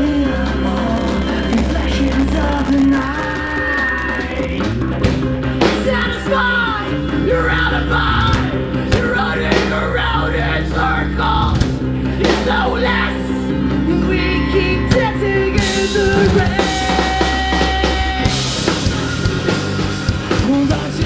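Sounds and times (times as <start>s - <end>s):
bass guitar: 0.0s - 21.0s
drums: 0.0s - 21.0s
electric guitars: 0.0s - 21.0s
person singing and yelling: 5.6s - 11.6s, 12.2s - 18.6s.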